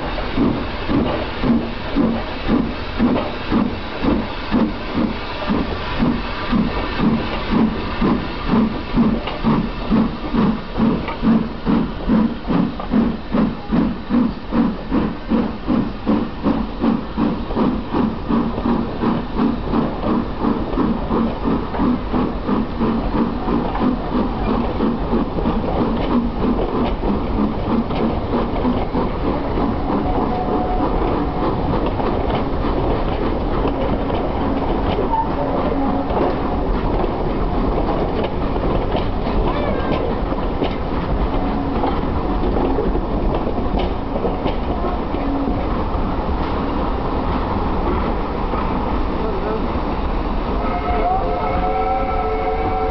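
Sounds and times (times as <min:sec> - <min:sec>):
steam locomotive chuffing: 0:00.0 - 0:52.9
coaches rumbling and clattering: 0:00.3 - 0:50.2.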